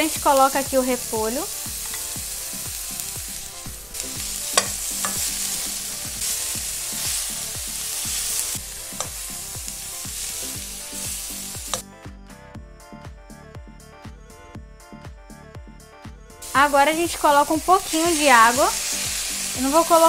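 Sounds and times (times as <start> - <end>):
vegetables sizzling in a wok: 0.0 - 11.9, 16.4 - 20.0
spatula knocking against pan: 4.6 - 5.3.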